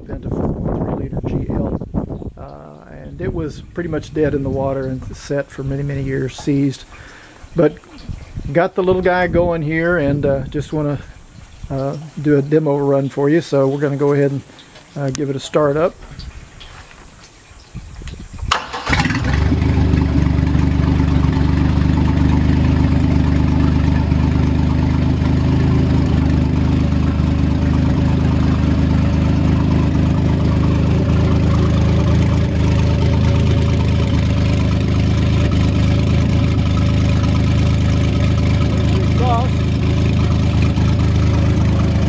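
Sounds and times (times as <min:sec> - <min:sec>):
boat engine running: 0:01.2 - 0:16.6, 0:18.4 - 0:42.0
engine starter cranking: 0:18.4 - 0:22.8.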